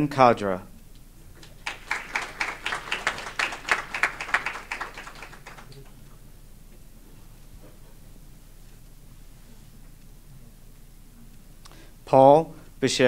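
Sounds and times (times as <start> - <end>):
small audience applauding: 1.4 - 6.1.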